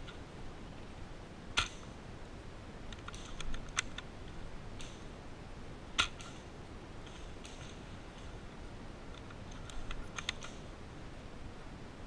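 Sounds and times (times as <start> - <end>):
airsoft gun cracks: 1.6 - 1.9, 6.0 - 6.5
fainter clicks: 9.1 - 10.7.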